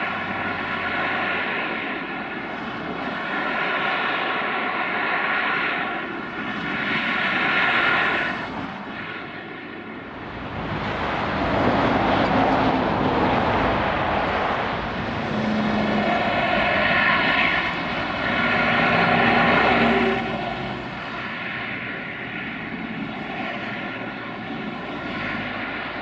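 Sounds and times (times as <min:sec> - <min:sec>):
distant engine drone: 0:00.0 - 0:26.0.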